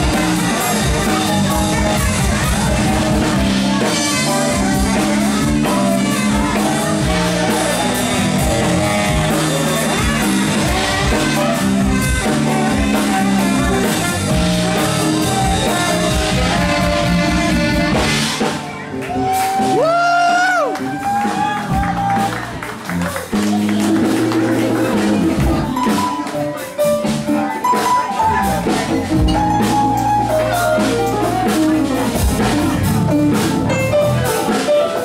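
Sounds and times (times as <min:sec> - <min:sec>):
tenor saxophone: 0:00.0 - 0:18.7
funk band playing: 0:00.0 - 0:35.0.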